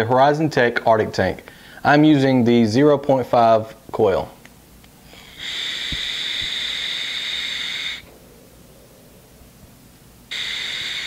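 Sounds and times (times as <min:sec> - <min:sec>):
vape tank air hiss: 0:05.1 - 0:08.1, 0:10.3 - 0:11.0.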